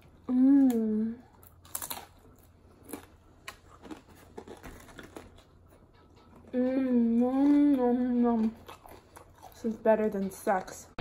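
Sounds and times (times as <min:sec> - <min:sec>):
chewing crisp tostada: 0:00.0 - 0:10.5.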